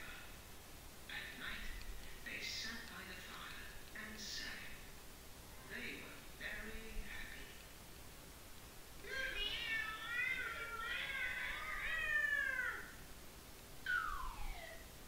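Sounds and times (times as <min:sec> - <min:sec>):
cartoon cat voice yowling: 0:10.0 - 0:13.0
short falling tone: 0:13.8 - 0:14.9.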